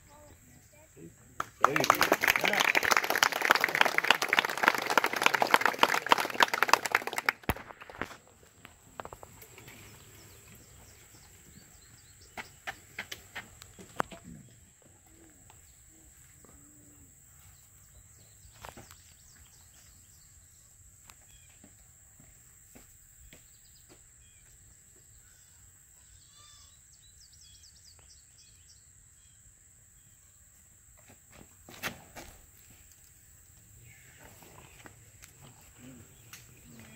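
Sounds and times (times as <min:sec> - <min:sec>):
birds chirping: 0:08.6 - 0:16.0.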